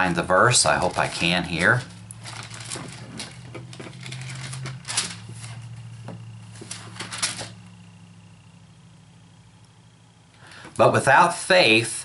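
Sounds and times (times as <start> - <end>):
low steady hum: 0.0 - 12.0
pages rustling and flipping: 0.6 - 7.6.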